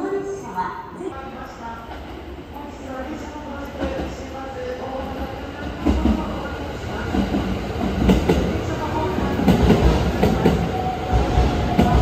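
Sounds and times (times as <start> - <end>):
train wheels rumbling and clacking: 3.4 - 12.0.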